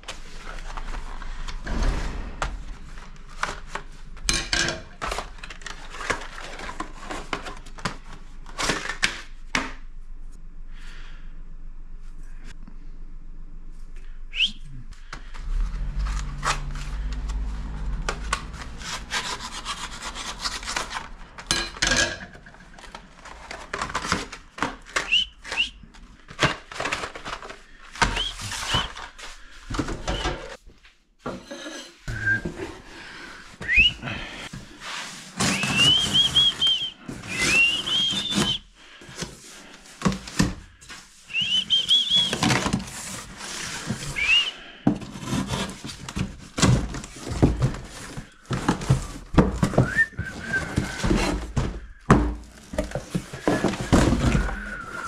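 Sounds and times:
packaging being handled and torn: 5.0 - 9.4, 15.9 - 21.5, 22.6 - 29.5.

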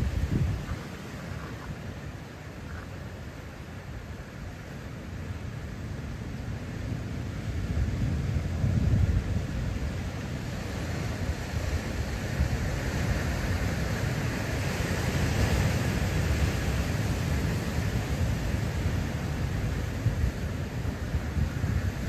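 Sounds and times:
wind on microphone: 0.0 - 3.0, 7.0 - 22.0.

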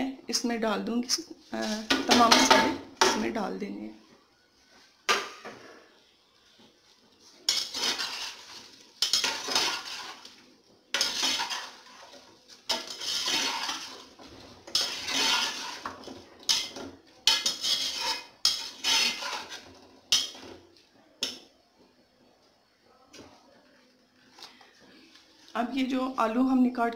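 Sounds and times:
metal spatula scraping a pot: 7.2 - 20.6.

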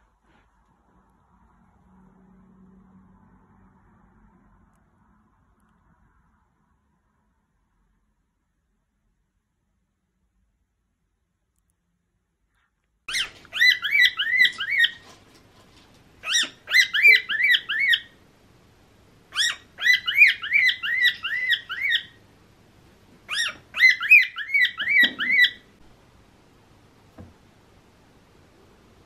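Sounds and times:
cockatiel chirping song: 13.1 - 15.1, 16.2 - 18.2, 19.3 - 22.2, 23.3 - 25.7.

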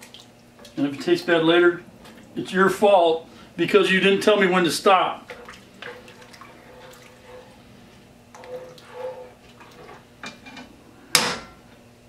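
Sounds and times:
ladle stirring liquid in pot: 4.9 - 10.8
ladle clanking on pot: 8.3 - 11.7.

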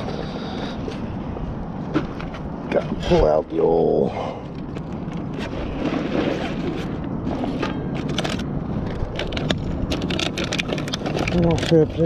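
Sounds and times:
steady low rumble: 0.0 - 12.0
fishing gear clicking and rustling: 4.5 - 12.0.

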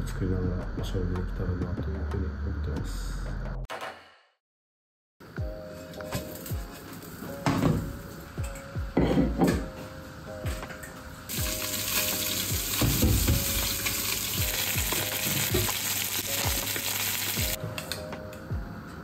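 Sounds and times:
faint background music: 0.0 - 3.7, 5.2 - 19.0
food sizzling in a pan: 11.3 - 17.6.

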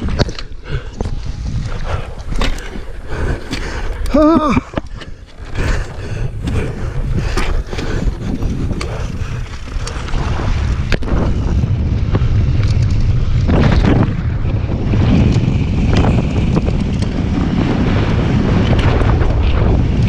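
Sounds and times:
tyres rumbling on loose dirt: 0.0 - 20.0
wind buffeting microphone: 0.0 - 20.0.

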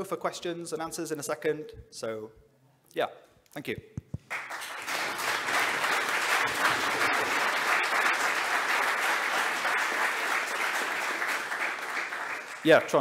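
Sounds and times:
audience applauding: 4.2 - 13.0.

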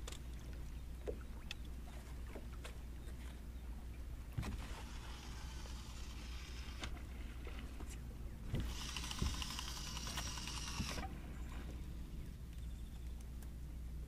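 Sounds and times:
fishing reel buzzing: 4.8 - 6.9, 8.6 - 11.1.

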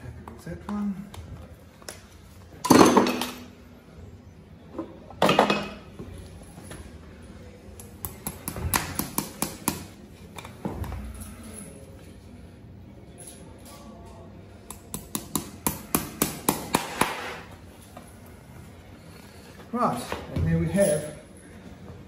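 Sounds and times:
hammer striking horseshoe nails: 8.0 - 9.9, 14.7 - 17.4.

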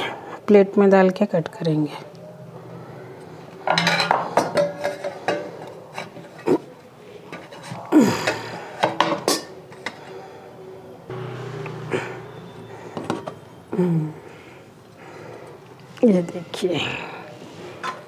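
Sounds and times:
metal plate and tin clinking: 3.6 - 6.5.

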